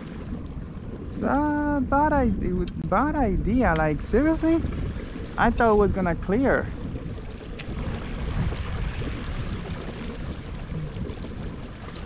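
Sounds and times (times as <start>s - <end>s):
wind and water rushing: 0.0s - 12.0s.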